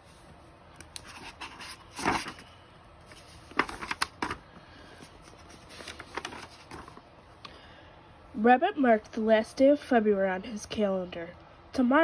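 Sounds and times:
book pages turning: 0:00.8 - 0:07.1
crisp paper rustles and taps: 0:05.6 - 0:07.0.

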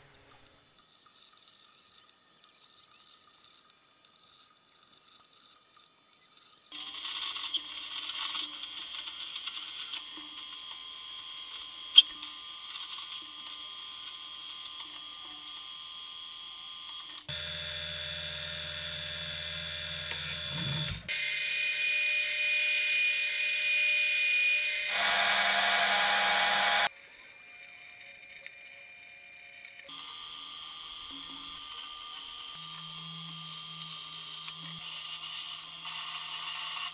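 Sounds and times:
metal lathe cutting whine: 0:13.6 - 0:26.9.

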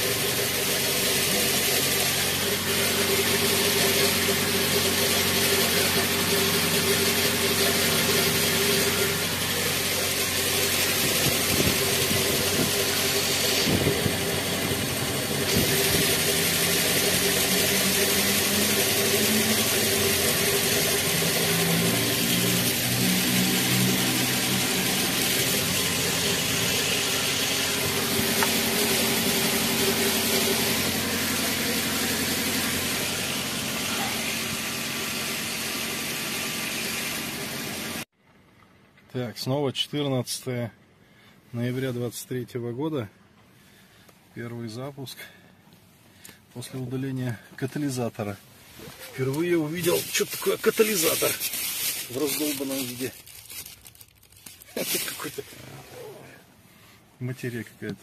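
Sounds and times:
car engine idling: 0:00.0 - 0:38.1.

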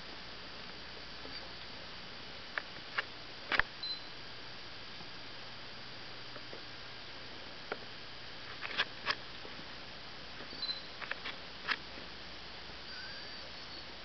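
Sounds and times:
steady hiss: 0:00.0 - 0:14.0
puppies squeaking: 0:10.5 - 0:10.9, 0:12.9 - 0:13.9.

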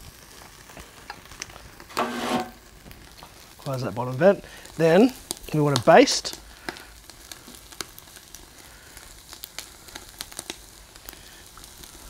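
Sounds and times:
chicken sizzling on a grill: 0:00.0 - 0:12.0.

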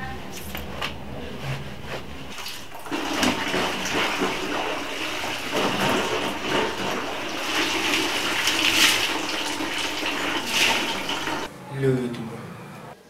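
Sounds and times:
water splashing onto tiled floor: 0:02.3 - 0:11.5.

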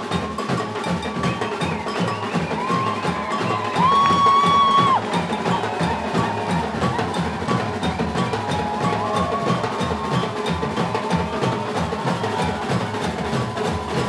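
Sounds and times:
drums playing samba groove: 0:00.0 - 0:14.0.

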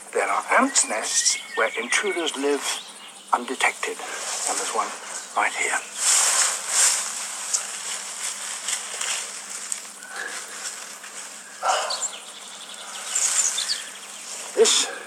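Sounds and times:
insects chirring: 0:00.0 - 0:15.0
fingers rustling through grass: 0:03.5 - 0:15.0.

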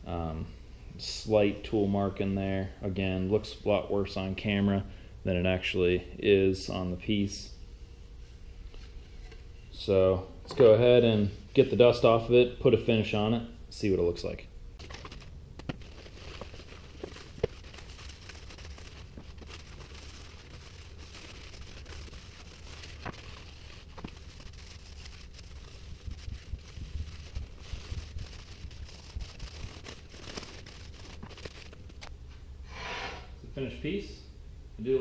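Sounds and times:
low steady hum: 0:00.0 - 0:35.0
paper towel rubbing wood bowl: 0:14.8 - 0:32.1.

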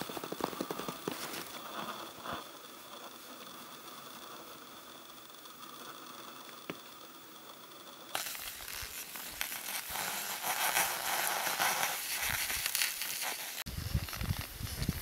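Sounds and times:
skis scraping over snow: 0:00.0 - 0:03.2, 0:08.2 - 0:15.0.

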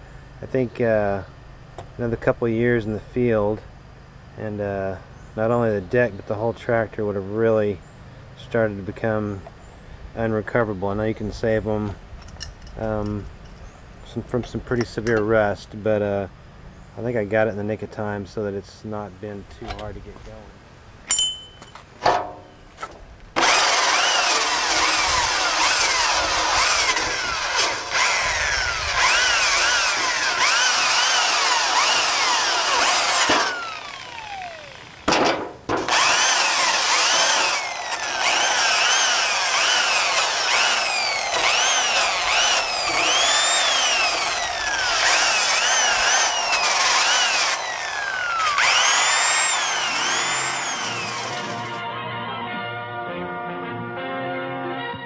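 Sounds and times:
angle grinder grinding metal: 0:23.4 - 0:35.1, 0:35.8 - 0:51.8
grinder spinning down whine: 0:23.4 - 0:35.1, 0:35.9 - 0:51.8.

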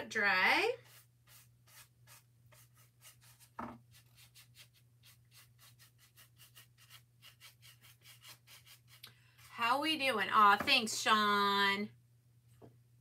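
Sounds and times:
paintbrush strokes on wood: 0:00.7 - 0:09.7.

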